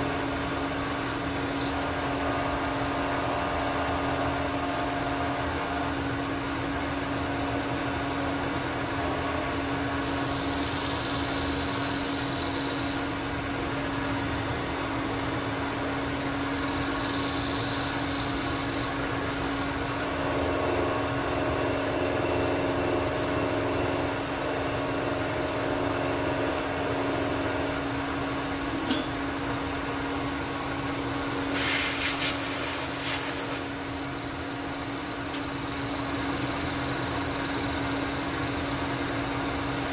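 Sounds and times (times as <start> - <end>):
milling machine motor hum: 0.0 - 31.5
loud hiss: 31.4 - 33.8.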